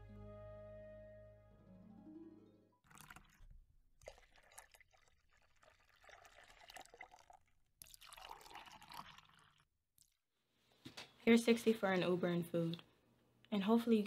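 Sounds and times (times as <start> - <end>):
milk pouring into a glass: 2.8 - 9.7.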